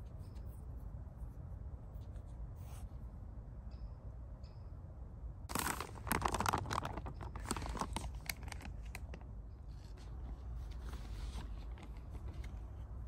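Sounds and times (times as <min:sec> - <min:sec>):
food pouch tearing open: 0:05.5 - 0:09.2
pouch crinkling: 0:05.5 - 0:09.2.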